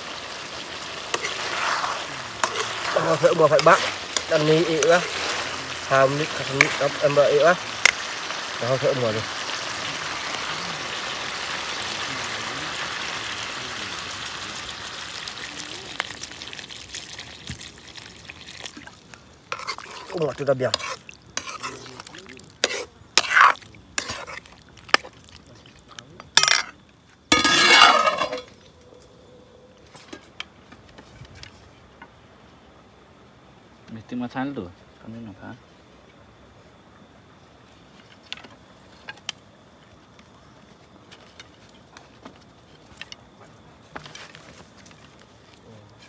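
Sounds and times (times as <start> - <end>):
chicken sizzling in a wok: 0.0 - 18.9, 27.3 - 28.4
ladle knocking and scraping wok: 1.1 - 7.2, 27.3 - 28.5.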